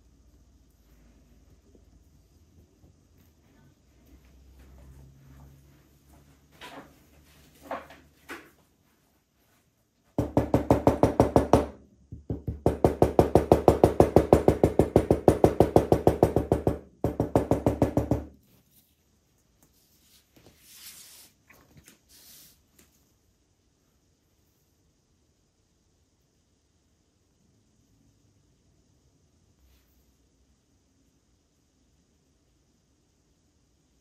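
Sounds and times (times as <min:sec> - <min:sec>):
rapid knocking on leather: 0:10.2 - 0:18.3.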